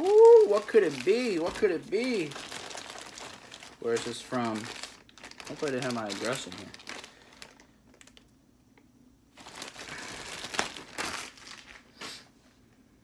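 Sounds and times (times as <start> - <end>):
plastic mailing bag crinkling: 0.0 - 8.3, 9.3 - 12.2.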